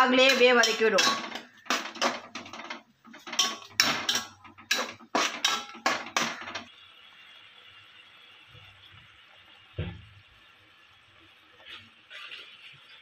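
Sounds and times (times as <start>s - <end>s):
metal spoon scraping metal pot: 0.0s - 6.7s.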